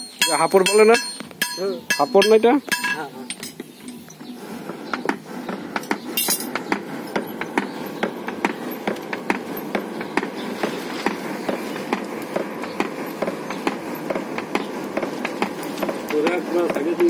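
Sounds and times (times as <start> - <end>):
sharp irregular clicks and taps: 4.7 - 17.0.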